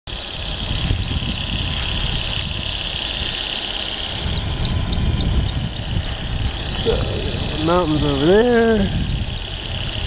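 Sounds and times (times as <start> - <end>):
cable car sheaves humming: 0.1 - 10.0
wind rumble on microphone: 0.3 - 3.4, 4.1 - 10.0.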